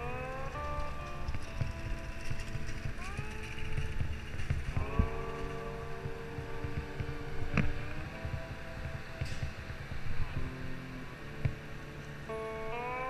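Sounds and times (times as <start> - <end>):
music with long held notes: 0.0 - 13.0
wind and road rumble: 0.0 - 13.0.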